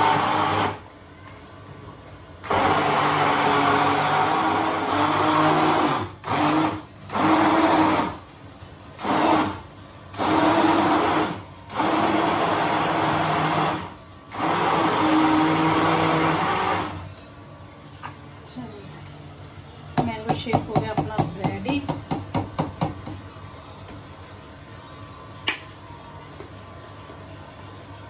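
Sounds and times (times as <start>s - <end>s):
immersion blender running: 0.0s - 0.9s, 2.4s - 8.2s, 9.0s - 17.1s.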